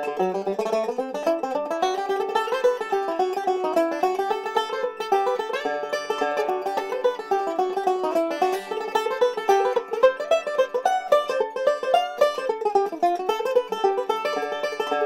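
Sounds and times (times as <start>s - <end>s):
banjo picking: 0.0s - 15.0s.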